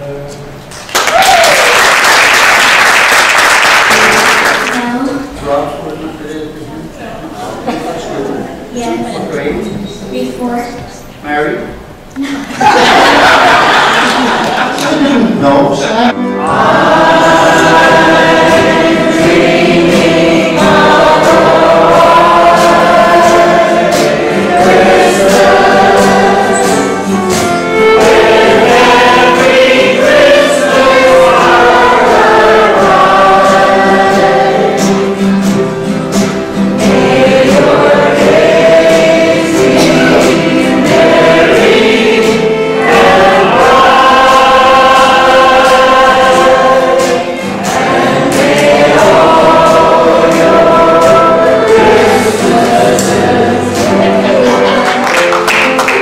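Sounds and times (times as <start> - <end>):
acoustic guitar: 3.8 - 12.2, 13.0 - 56.0
mixed choir singing: 12.6 - 14.8, 16.1 - 56.0.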